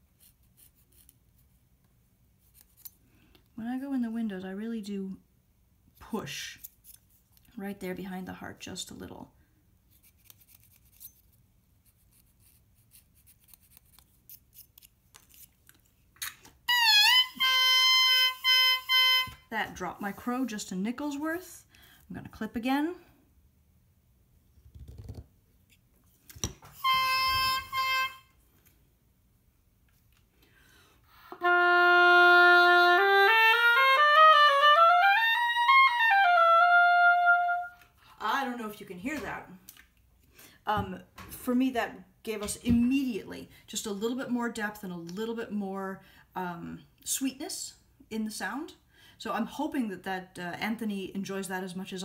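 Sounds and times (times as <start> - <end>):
knife scraping reed cane: 0.1 - 1.2, 2.4 - 3.0, 6.6 - 7.4, 9.9 - 16.4
oboe playing a scale: 16.7 - 19.5, 26.7 - 28.4, 31.1 - 37.9.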